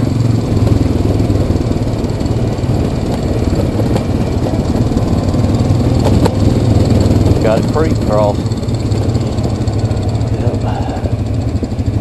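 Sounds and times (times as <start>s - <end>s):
atv engine running: 0.0s - 12.0s.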